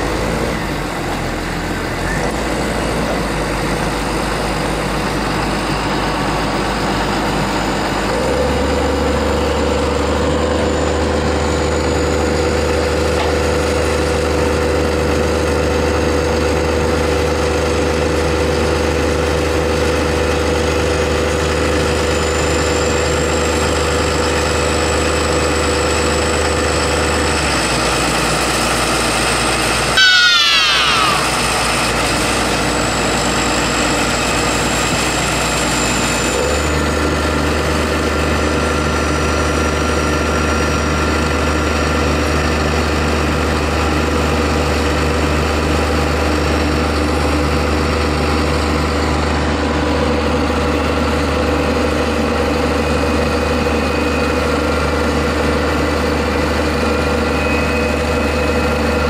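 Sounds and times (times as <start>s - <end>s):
diesel tractor engine running: 0.0s - 59.0s
loud falling squeal: 29.9s - 32.2s, 52.8s - 59.0s.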